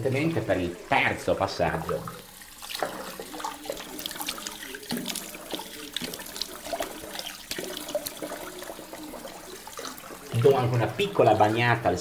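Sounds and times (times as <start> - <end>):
water splashing: 0.0 - 12.0
tap running into sink: 1.7 - 11.5.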